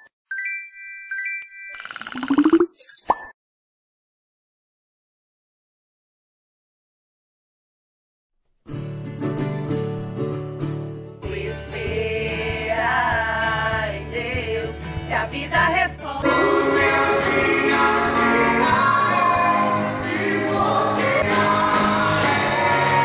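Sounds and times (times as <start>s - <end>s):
worship song with band: 11.3s - 23.0s.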